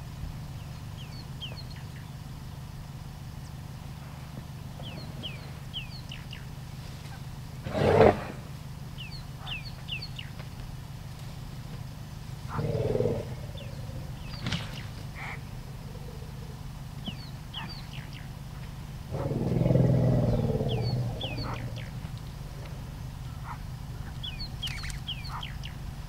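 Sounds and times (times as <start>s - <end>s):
steady low hum: 0.0s - 26.0s
birds chirping: 0.4s - 11.0s, 11.6s - 26.0s
elephants growling: 7.6s - 8.5s, 12.5s - 16.8s, 19.0s - 23.6s.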